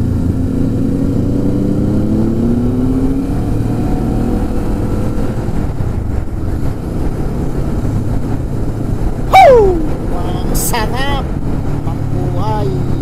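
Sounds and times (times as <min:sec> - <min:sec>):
motorcycle engine revving: 0:00.0 - 0:05.6
wind and road rumble: 0:00.0 - 0:13.0.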